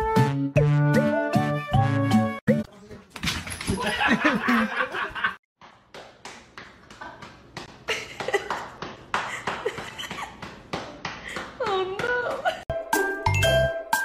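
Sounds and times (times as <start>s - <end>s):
people laughing: 3.7s - 5.4s.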